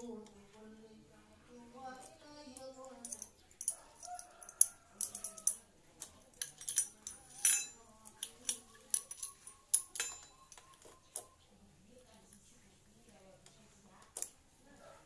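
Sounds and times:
metal parts clinking: 3.0s - 11.3s.

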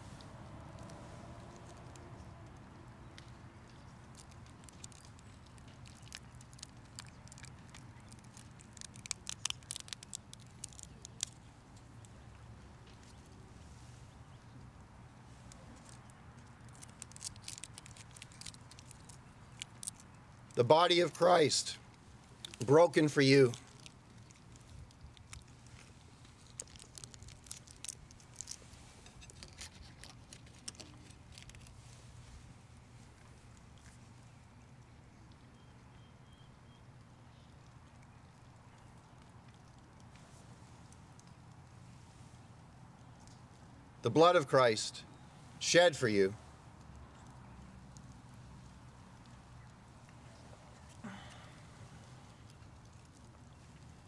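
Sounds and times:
bread crackling being handled: 0.0s - 34.9s, 46.2s - 54.0s
low steady hum: 0.0s - 54.0s.

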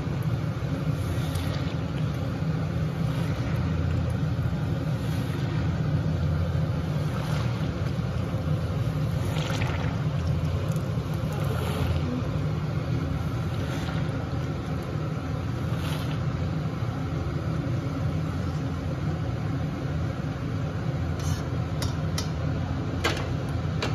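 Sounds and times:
oil sizzling: 0.0s - 18.6s.

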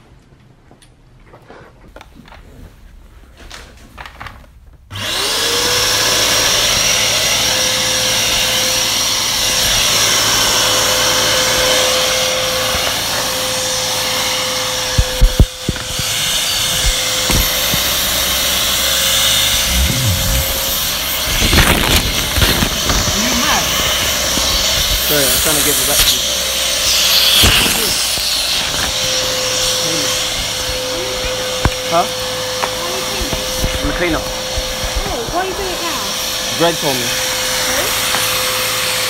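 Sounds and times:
vacuum cleaner motor whining: 4.9s - 39.0s
rushing air: 19.1s - 22.6s.

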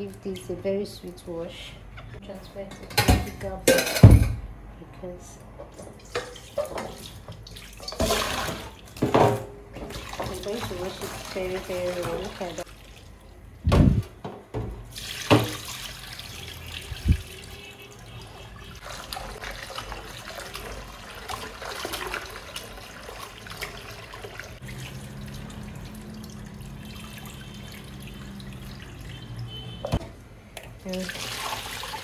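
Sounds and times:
tap water running into bowl: 14.9s - 32.0s.

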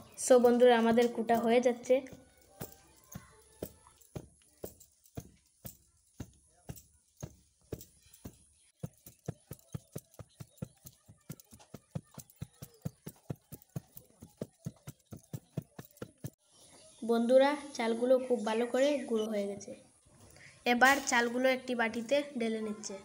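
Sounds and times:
wooden pestle pounding in mortar: 2.2s - 16.4s.

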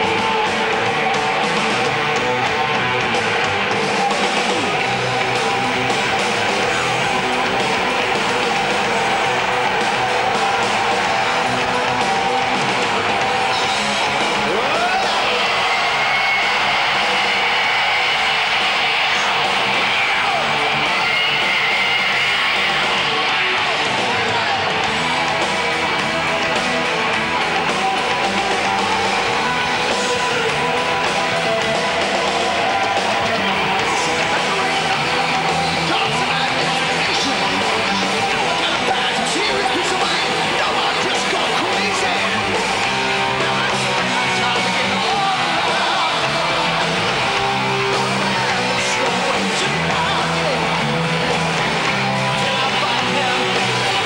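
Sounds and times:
drums: 0.0s - 54.0s
heavy rock music with electric guitar: 0.0s - 54.0s
person singing: 51.9s - 54.0s.

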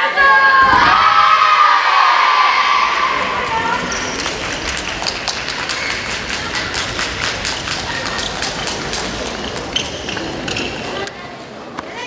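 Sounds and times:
children running on wooden floor: 2.7s - 11.0s.

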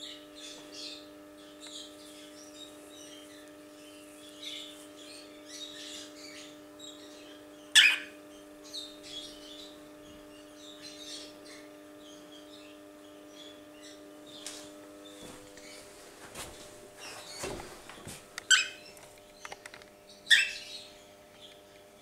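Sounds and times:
steady low hum: 0.0s - 22.0s
cockatiels chirping: 0.4s - 14.5s, 18.4s - 19.6s, 20.2s - 21.5s.

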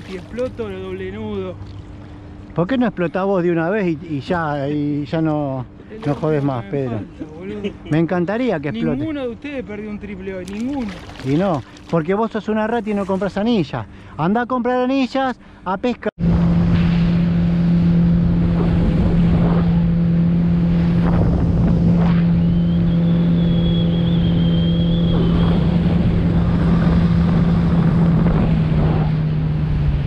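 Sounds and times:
boat motor running: 0.0s - 14.8s, 15.4s - 30.0s
wind noise on microphone: 16.2s - 30.0s.

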